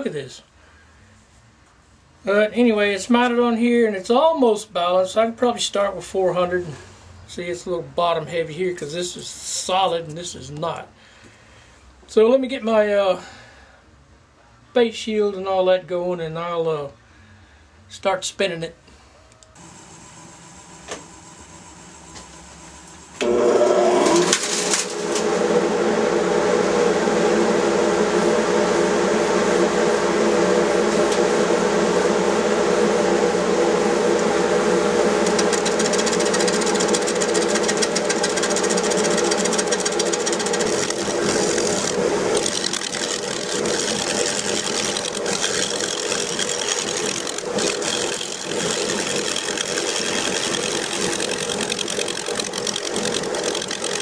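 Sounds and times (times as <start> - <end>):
wood lathe humming: 19.6 - 54.0
turning tool cutting wood: 35.0 - 54.0.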